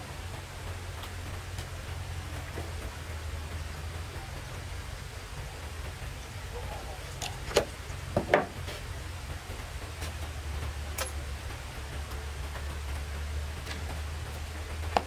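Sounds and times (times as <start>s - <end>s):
low rumble: 0.0s - 15.0s
sharp knocks: 7.5s - 8.6s.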